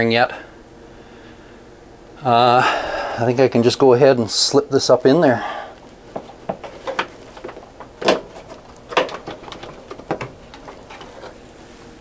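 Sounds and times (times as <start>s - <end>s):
plastic knocks and clicks: 6.2s - 11.0s.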